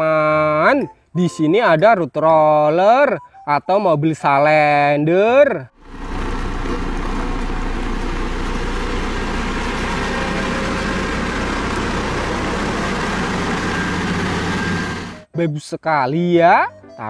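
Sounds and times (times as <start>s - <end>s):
road roller diesel engine running: 5.8s - 15.3s.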